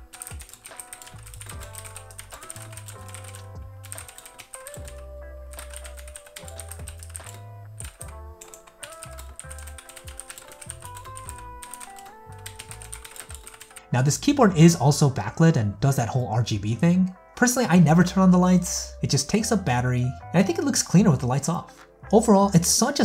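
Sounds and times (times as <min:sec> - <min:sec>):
background music with bass line: 0:00.0 - 0:11.6
clicky mechanical keyboard typing: 0:00.1 - 0:13.9.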